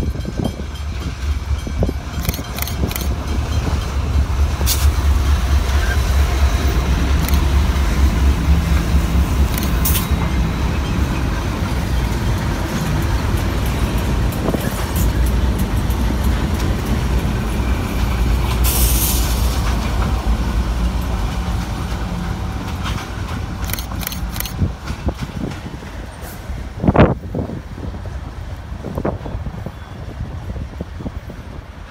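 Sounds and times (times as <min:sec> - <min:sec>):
diesel locomotives rumbling: 0:00.0 - 0:31.9
scattered clicks: 0:02.1 - 0:03.3, 0:07.1 - 0:07.6, 0:09.4 - 0:10.2, 0:23.6 - 0:25.0
short hiss: 0:18.6 - 0:19.6.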